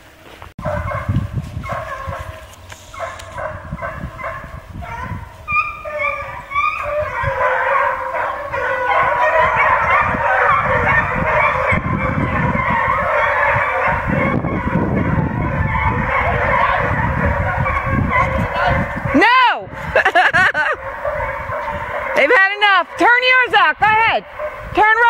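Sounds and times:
hounds baying: 0.6s - 25.0s.

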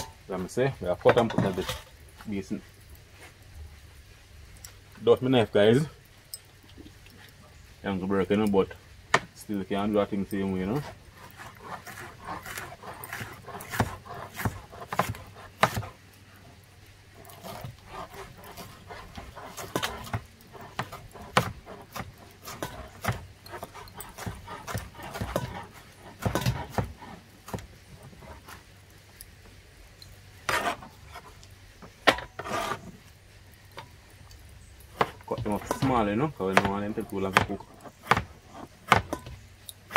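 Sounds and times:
knife cutting vegetables: 11.2s - 15.9s, 17.2s - 28.6s.

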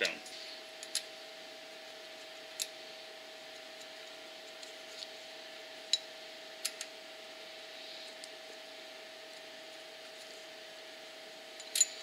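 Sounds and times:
faint steady hum: 0.0s - 12.0s
metallic clicks of nuts threading: 2.5s - 2.8s.

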